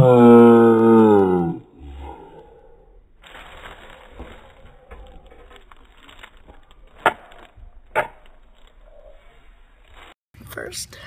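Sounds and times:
plastic bag crinkling: 0:03.2 - 0:09.1, 0:09.7 - 0:10.2.

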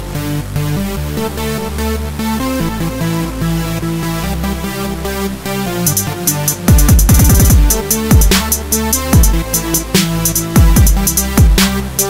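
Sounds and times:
steady bass: 0:00.0 - 0:12.0
synth chords: 0:00.0 - 0:12.0
hi-hats: 0:05.8 - 0:12.0.

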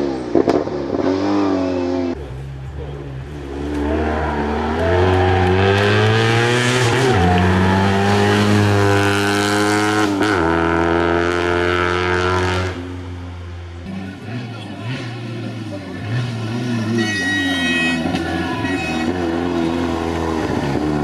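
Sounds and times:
rally car engine accelerating past: 0:03.3 - 0:12.8.

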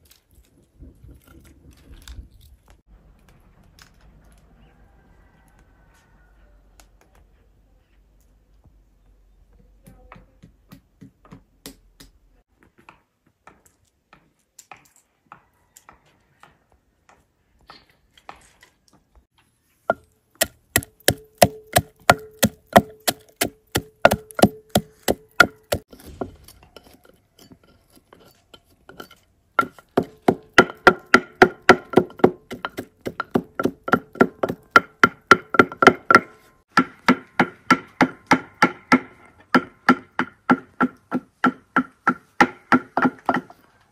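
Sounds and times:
pestle pounding in wooden mortar: 0:19.9 - 0:26.4, 0:28.9 - 0:43.5.

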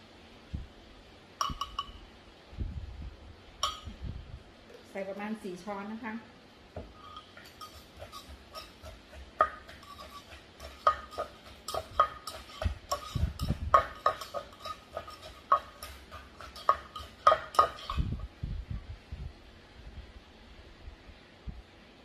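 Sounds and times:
metal spoon clinking on mortar: 0:01.4 - 0:02.0, 0:03.6 - 0:03.9, 0:07.0 - 0:18.1.

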